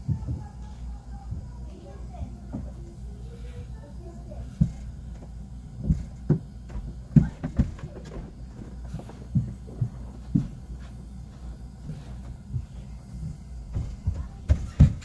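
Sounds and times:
dull thumps and knocks: 4.5s - 10.6s, 13.7s - 15.0s.

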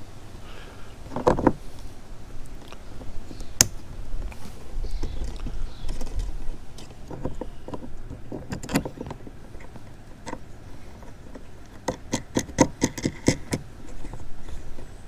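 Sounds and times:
hard plastic clicks and knocks: 11.0s - 14.2s.

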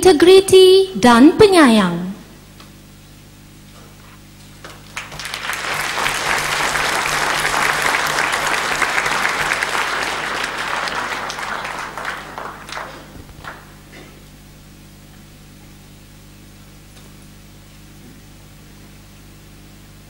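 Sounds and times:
audience applauding: 4.6s - 13.9s.

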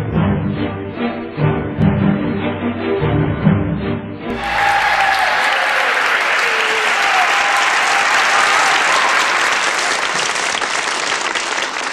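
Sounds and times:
audience applauding: 4.3s - 11.9s.

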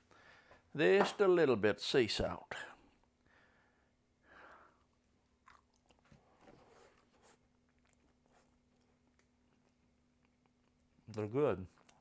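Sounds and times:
chestnut being chewed: 4.8s - 12.0s.

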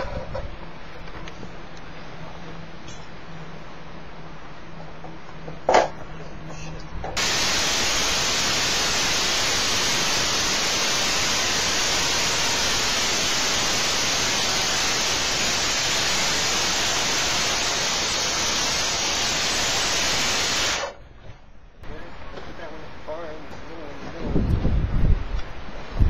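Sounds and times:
circular saw cutting timber: 7.2s - 21.0s.

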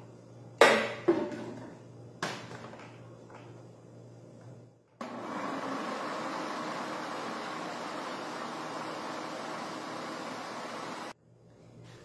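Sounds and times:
blender motor running: 5.0s - 11.2s.

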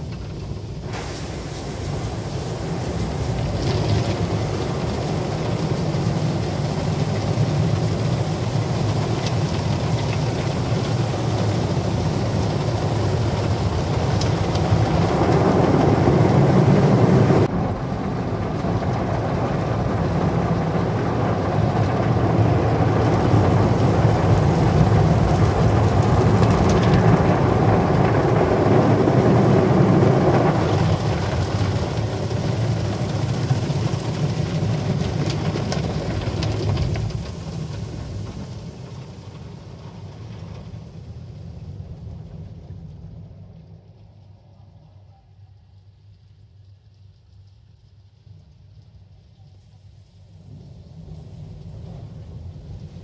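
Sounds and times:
water spraying over glass: 0.3s - 40.7s.

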